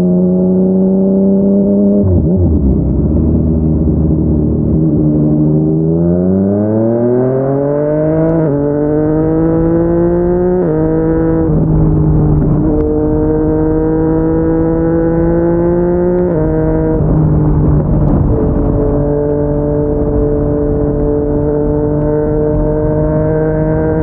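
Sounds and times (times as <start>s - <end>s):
motorcycle engine accelerating: 0.0s - 24.0s.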